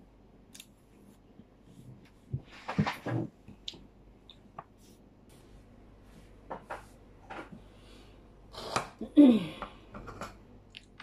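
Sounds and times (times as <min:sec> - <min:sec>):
plates tapping and rubbing: 0:09.9 - 0:10.4.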